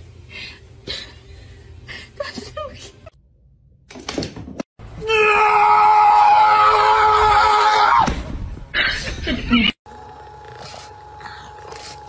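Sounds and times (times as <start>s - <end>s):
high-pitched scream: 5.0s - 8.1s.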